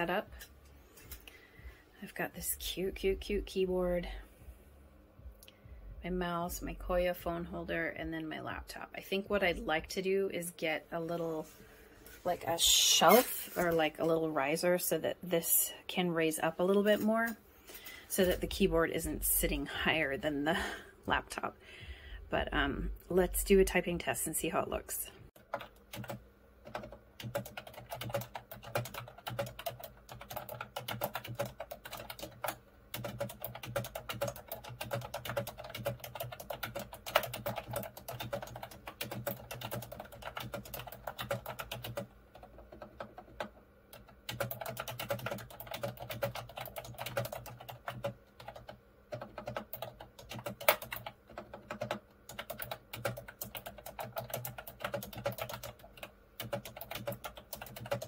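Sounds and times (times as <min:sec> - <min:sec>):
fast keyboard typing: 0:25.4 - 0:58.0.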